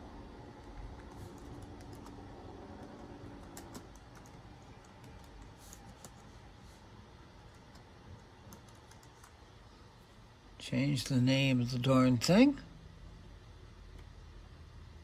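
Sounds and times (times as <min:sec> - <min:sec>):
laptop keyboard typing: 0:00.4 - 0:06.5, 0:07.4 - 0:09.5.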